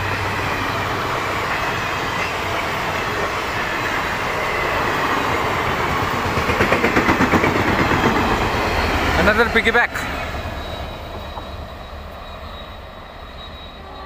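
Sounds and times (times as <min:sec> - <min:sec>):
wheels clacking on rail joints: 0:00.0 - 0:11.6
train rushing past: 0:00.0 - 0:14.0.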